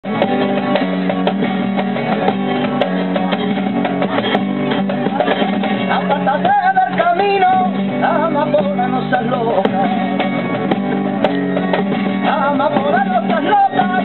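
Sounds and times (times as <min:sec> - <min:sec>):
flamenco guitars playing: 0:00.0 - 0:14.0
man singing: 0:05.0 - 0:10.2, 0:12.1 - 0:14.0.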